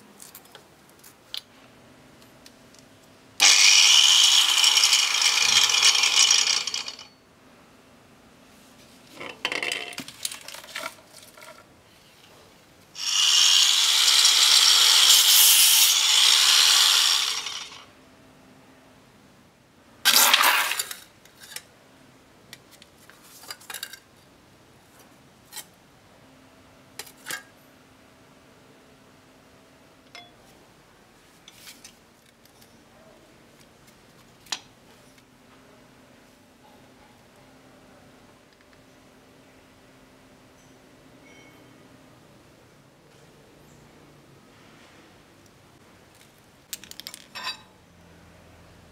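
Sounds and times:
loud steady hiss: 0:13.0 - 0:17.9
metal tools clicking and clinking: 0:46.8 - 0:47.7.

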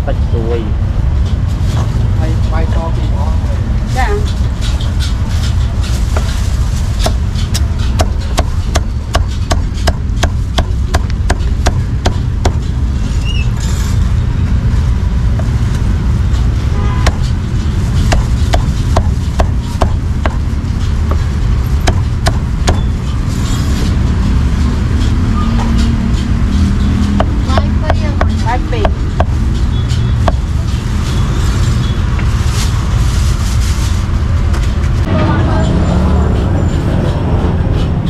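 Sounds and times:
steady low rumble: 0:00.0 - 0:38.0
cleaver chopping on wooden block: 0:08.0 - 0:12.6, 0:18.1 - 0:20.4, 0:21.8 - 0:22.8, 0:27.2 - 0:29.3.

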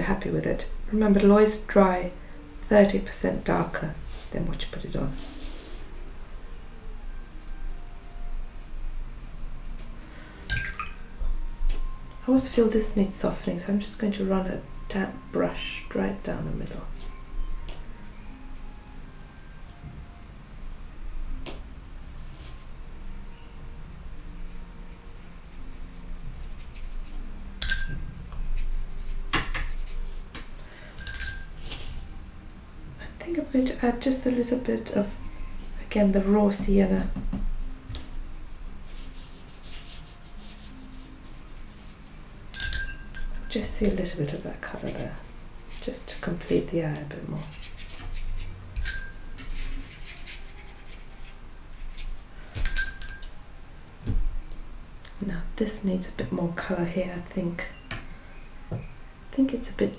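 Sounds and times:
paintbrush clinking against dish: 0:10.5 - 0:11.4, 0:27.6 - 0:28.1, 0:30.8 - 0:31.6, 0:42.5 - 0:43.9, 0:48.1 - 0:50.4, 0:52.6 - 0:53.3
metal palette clinks: 0:27.6 - 0:28.1, 0:31.0 - 0:31.6, 0:42.6 - 0:43.5, 0:48.8 - 0:49.3, 0:52.6 - 0:53.3.

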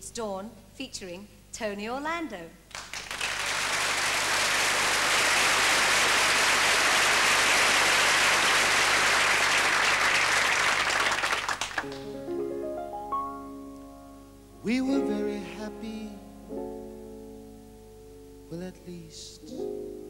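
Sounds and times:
audience applauding: 0:02.7 - 0:12.1.

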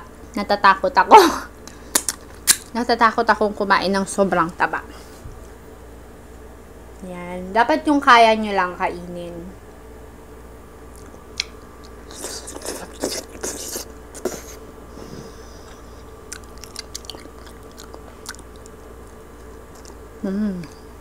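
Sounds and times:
crispy skin crackling and crunching: 0:10.9 - 0:14.6, 0:16.3 - 0:20.1.

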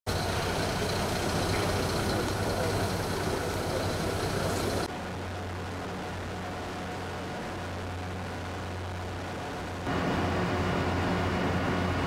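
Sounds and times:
truck diesel engine running: 0:00.1 - 0:04.9
low industrial hum: 0:00.1 - 0:12.0.

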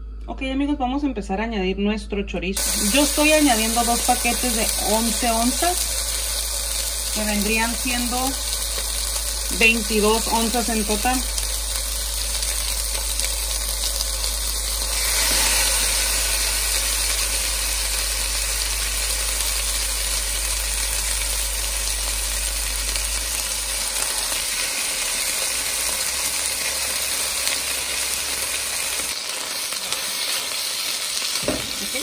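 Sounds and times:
meat sizzling in a frying pan: 0:02.6 - 0:32.0.

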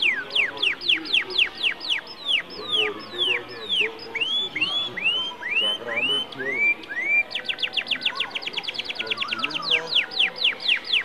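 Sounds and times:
canary singing: 0:00.0 - 0:11.0.

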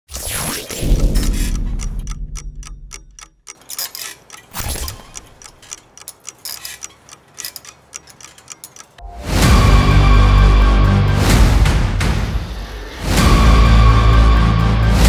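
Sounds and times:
clock-like ticking: 0:00.6 - 0:09.6.

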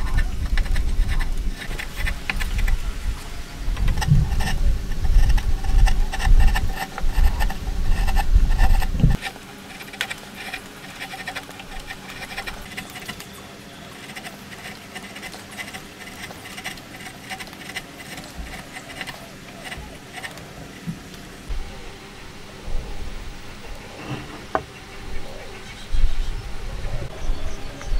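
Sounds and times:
chisel scraping wood: 0:00.0 - 0:02.9, 0:03.8 - 0:20.5, 0:24.0 - 0:24.7.

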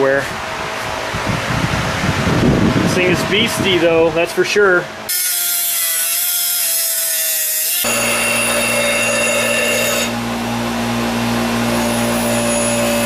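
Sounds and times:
air grinder whining: 0:05.1 - 0:13.0
bench grinder humming: 0:05.1 - 0:13.0
steel rasping against grinding wheel: 0:07.8 - 0:10.2, 0:11.7 - 0:13.0.

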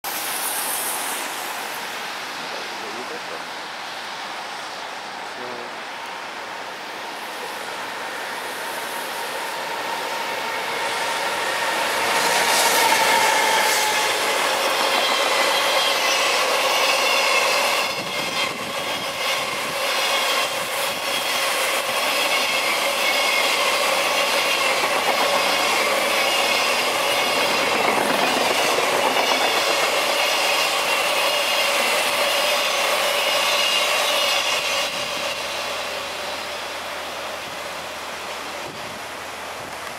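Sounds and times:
freight train passing: 0:00.0 - 0:39.9
wheels clattering on rail: 0:09.7 - 0:35.9.

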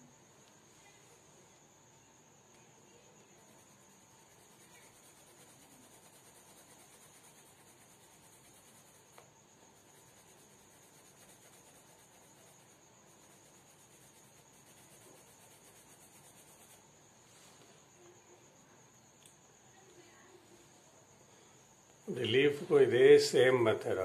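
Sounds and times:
pencil shading on paper: 0:03.3 - 0:16.9
small tick: 0:19.2 - 0:19.4.

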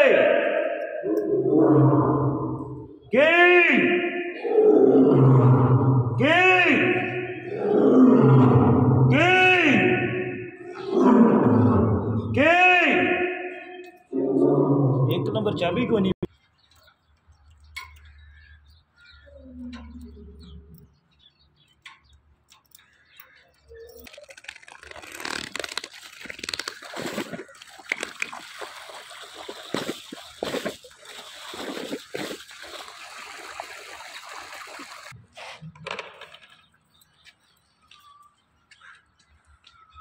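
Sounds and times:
water gushing into tank: 0:26.8 - 0:35.2.

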